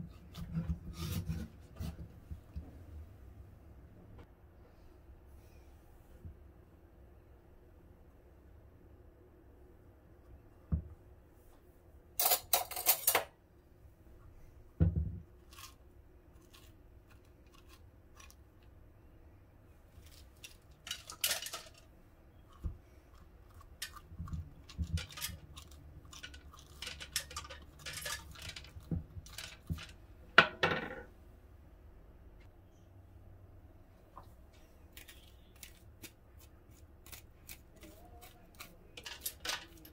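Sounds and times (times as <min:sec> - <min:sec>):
spoon scraping squash: 0:00.0 - 0:02.0, 0:15.4 - 0:18.5, 0:19.9 - 0:29.9, 0:35.0 - 0:39.9.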